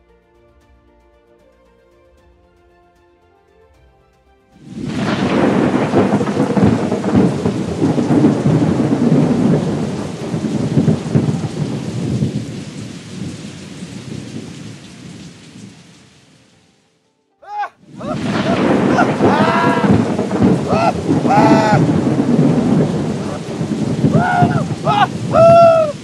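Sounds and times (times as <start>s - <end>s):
rumbling volcano eruption: 4.6s - 15.2s, 17.9s - 26.0s.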